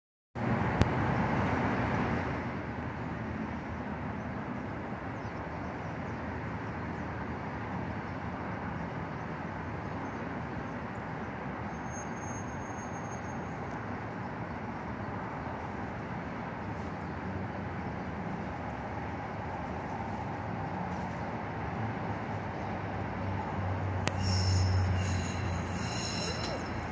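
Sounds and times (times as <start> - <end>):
freeway traffic drone: 0.4 - 26.9
light-rail train approaching: 0.4 - 26.9
sharp click: 24.0 - 24.3.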